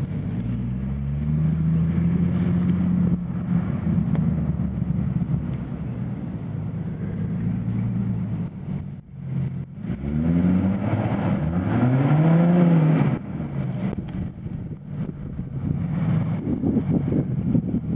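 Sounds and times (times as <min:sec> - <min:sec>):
car engine revving: 0:00.0 - 0:17.9.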